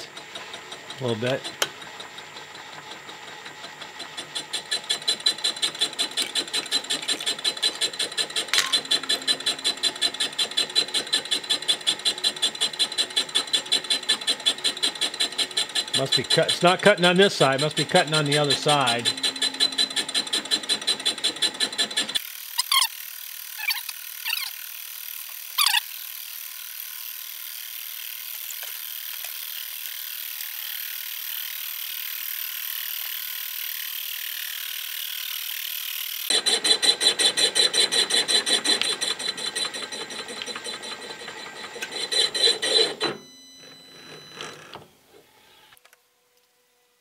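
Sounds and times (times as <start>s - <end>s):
mill spindle hissing: 0.0s - 22.6s, 36.3s - 43.0s
boring tool ticking while cutting: 0.0s - 43.6s.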